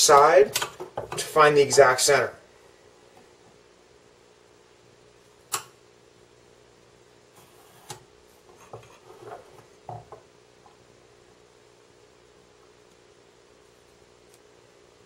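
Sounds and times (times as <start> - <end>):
sharp click: 5.5 - 5.8.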